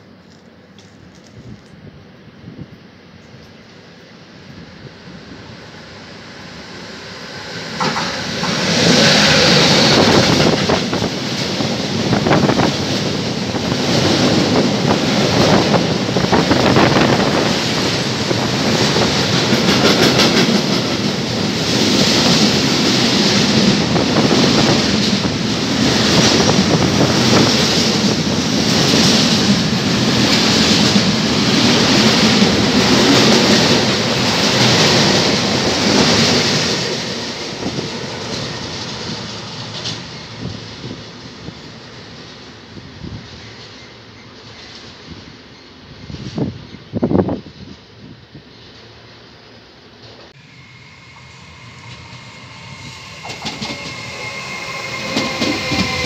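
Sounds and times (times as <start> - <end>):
train passing at speed: 0.0 - 56.0
wheels clickety-clack on rails: 7.7 - 47.9, 53.0 - 56.0.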